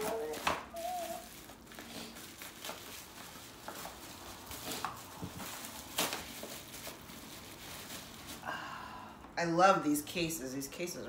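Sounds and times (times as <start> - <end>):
plastic packaging crinkling: 0.0 - 8.5.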